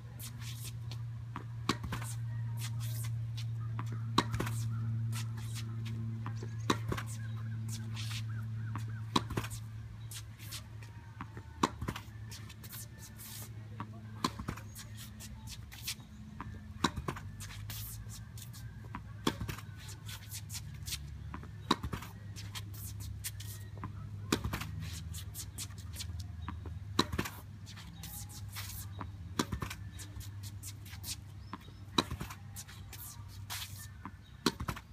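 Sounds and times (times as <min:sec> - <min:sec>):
racket hitting tennis ball: 0:00.2 - 0:13.5, 0:14.2 - 0:34.9
ball rebounding and bouncing: 0:03.7 - 0:09.7.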